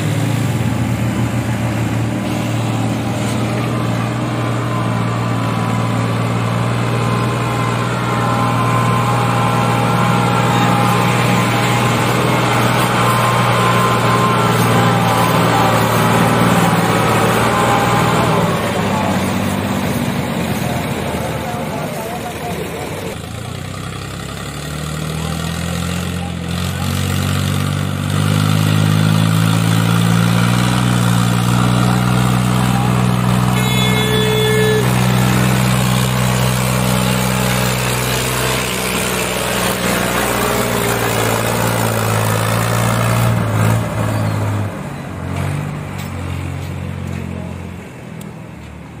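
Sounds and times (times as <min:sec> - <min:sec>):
diesel tractor engines under load: 0:00.0 - 0:49.0
short high-pitched tone: 0:33.5 - 0:35.9.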